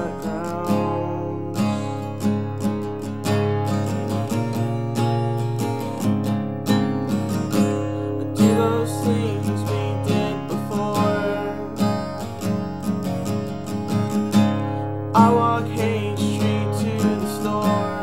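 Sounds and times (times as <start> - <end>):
man singing: 0.0 - 2.2, 8.3 - 12.4, 15.2 - 18.0
acoustic guitar strumming: 0.0 - 18.0.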